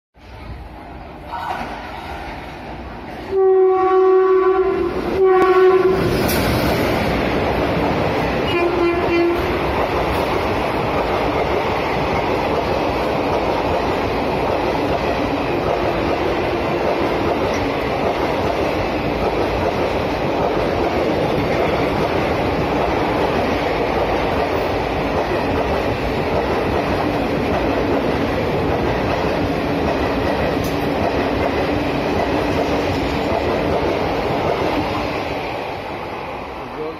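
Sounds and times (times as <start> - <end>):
passing train coaches rushing: 0.2 - 36.9
train horn: 3.3 - 6.2, 8.4 - 9.6.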